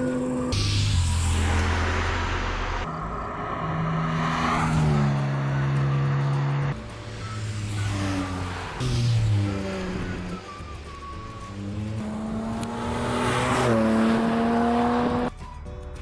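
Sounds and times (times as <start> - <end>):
sports car engine accelerating: 1.2 - 6.8, 11.5 - 15.3.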